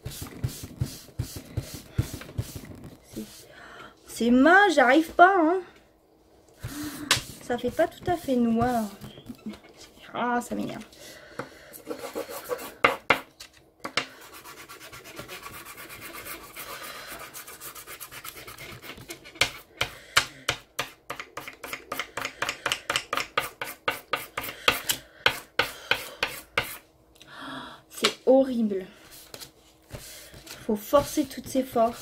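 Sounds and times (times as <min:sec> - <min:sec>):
pastel scratching on paper: 0:14.2 - 0:19.4.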